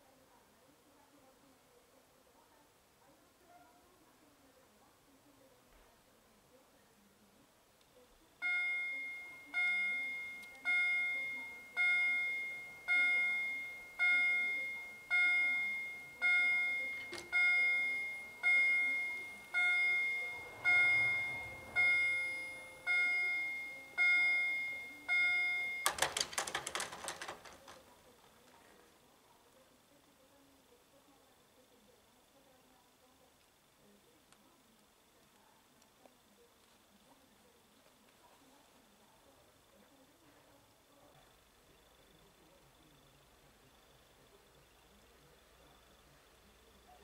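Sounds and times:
level crossing warning bell: 8.4 - 27.6.

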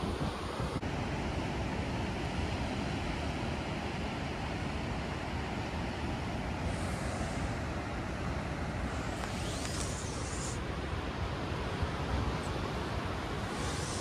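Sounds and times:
wind buffeting microphone: 0.0 - 0.9
surf washing over rocks: 0.0 - 14.0.

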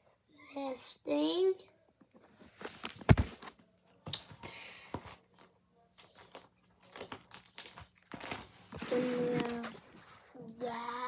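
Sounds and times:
plastic pages rustling and crinkling: 4.2 - 10.2.

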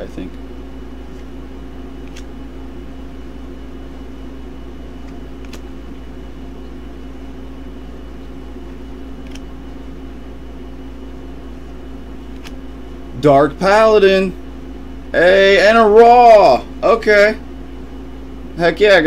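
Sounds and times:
air conditioner humming: 0.0 - 19.0
trading cards snapping: 2.0 - 2.4, 5.0 - 5.7, 9.2 - 9.6, 12.3 - 12.6.

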